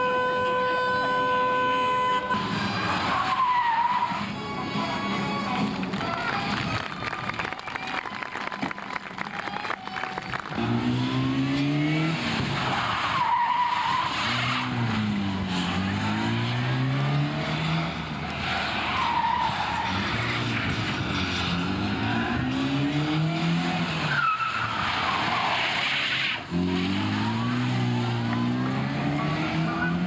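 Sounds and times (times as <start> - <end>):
tyre squeals: 2.4 - 4.3, 12.6 - 14.8, 24.0 - 27.4
car engine revving: 9.9 - 30.0.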